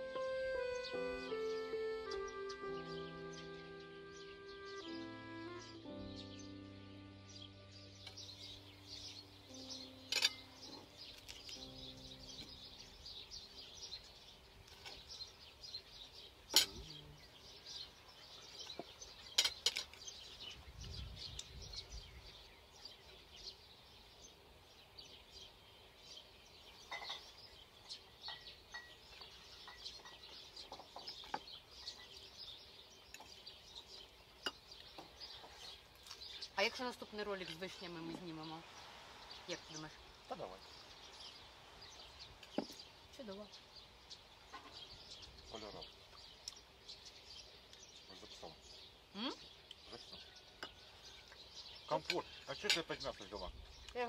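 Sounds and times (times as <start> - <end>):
music track: 0.0 - 13.1
small birds chirping: 0.0 - 54.0.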